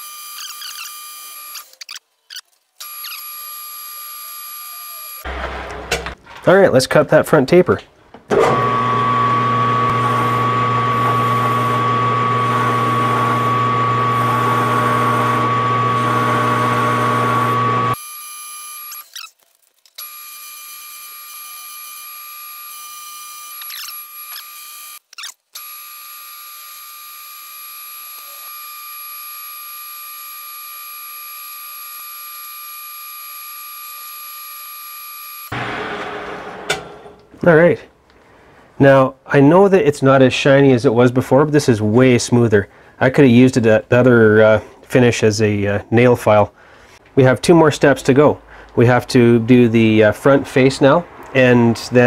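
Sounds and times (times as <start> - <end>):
metal lathe running: 8.3 - 18.0, 35.5 - 37.4.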